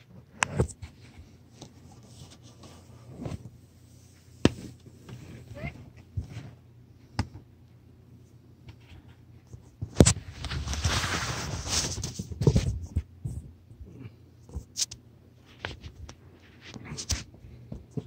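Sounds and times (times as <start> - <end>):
loud fabric rustle: 10.2 - 12.2.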